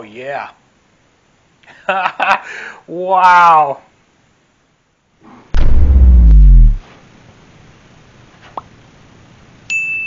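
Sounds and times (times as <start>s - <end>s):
deep falling sound effect: 5.6s - 6.8s
short rising pop: 5.6s - 6.8s.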